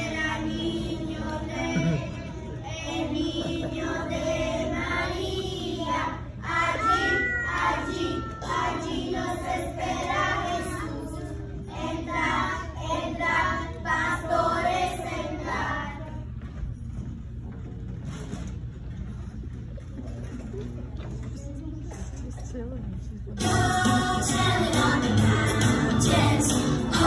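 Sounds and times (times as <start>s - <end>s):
children singing together: 0.0s - 16.2s, 23.4s - 27.0s.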